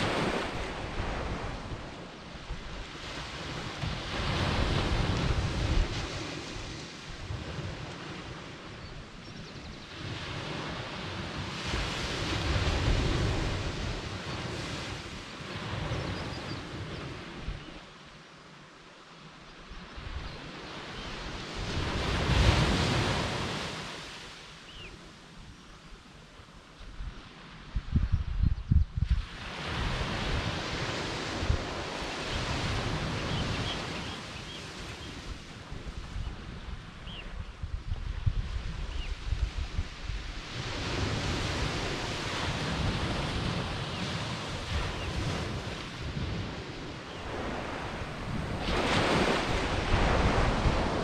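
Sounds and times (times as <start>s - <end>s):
wave breaking on beach: 0.0s - 8.6s, 39.4s - 51.0s
wind rumble on microphone: 0.0s - 18.0s, 19.4s - 51.0s
sea waves breaking on a beach: 0.0s - 27.9s, 29.1s - 51.0s.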